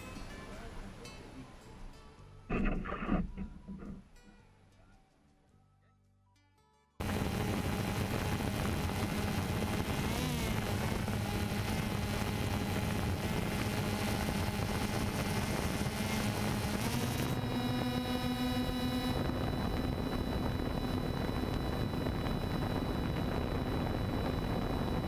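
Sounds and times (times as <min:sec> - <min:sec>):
drone propellers buzzing: 0:07.0 - 0:25.0.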